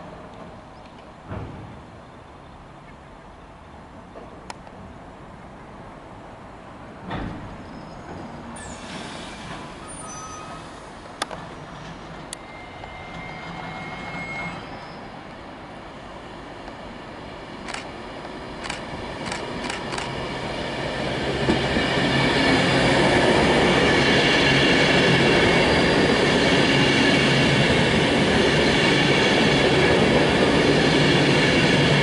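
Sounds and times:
thump: 0:01.3 - 0:01.8, 0:07.0 - 0:07.5
train wheels rumbling: 0:07.0 - 0:15.4, 0:16.2 - 0:32.0.

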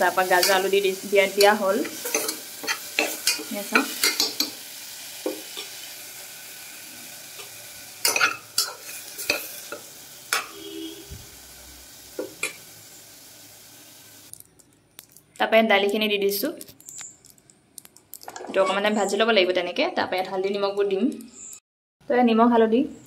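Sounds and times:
vegetables sizzling in oil: 0:00.0 - 0:14.4.

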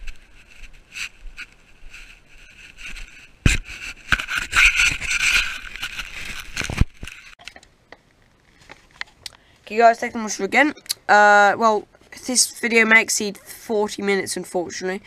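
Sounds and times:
camera handling noise: 0:02.7 - 0:07.4.

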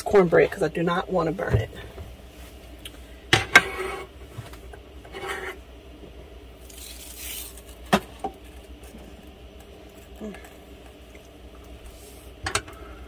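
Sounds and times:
glass lid scraping: 0:05.1 - 0:05.6.

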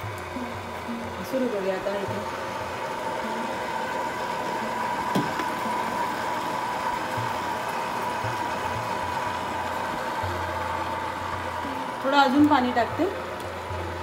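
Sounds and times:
dough kneading machine whining: 0:00.0 - 0:14.0.

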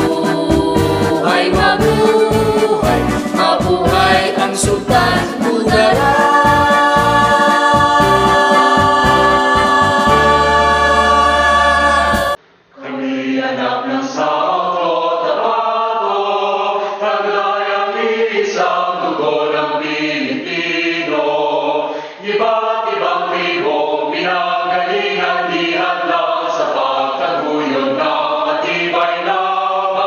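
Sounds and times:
music with chords and pulsing beat: 0:00.0 - 0:12.4
group of voices chanting: 0:00.0 - 0:30.0.

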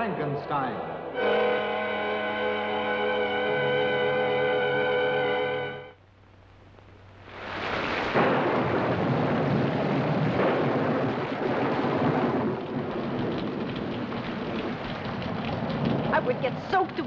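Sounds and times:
held music chord: 0:01.1 - 0:06.0
heavy rain: 0:07.2 - 0:17.0
loud thunderclap: 0:07.8 - 0:17.0
rumbling thunder: 0:08.0 - 0:17.0.

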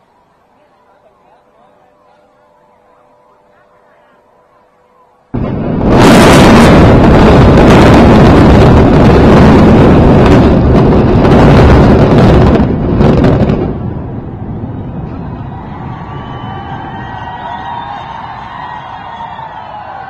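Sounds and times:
building collapse rumble: 0:05.3 - 0:20.0.

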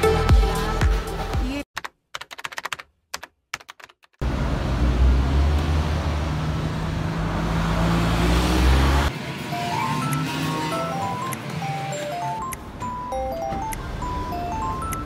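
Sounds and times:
low rumble of traffic: 0:04.2 - 0:15.0.

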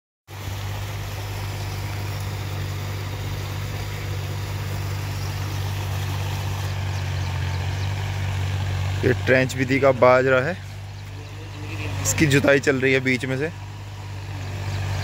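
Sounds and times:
steady hiss: 0:00.3 - 0:06.9
tractor engine running: 0:00.3 - 0:15.0.

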